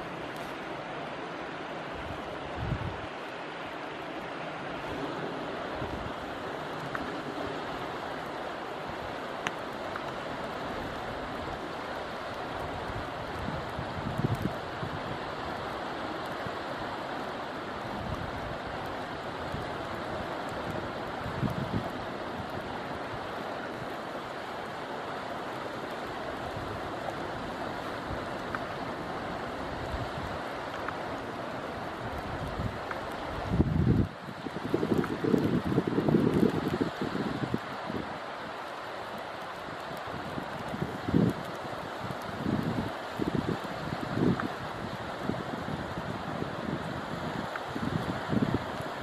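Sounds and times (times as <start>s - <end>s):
river water flowing: 0.0s - 49.0s
wind buffeting microphone: 1.9s - 3.2s, 12.6s - 15.7s, 17.8s - 24.0s, 31.8s - 38.6s, 39.6s - 49.0s.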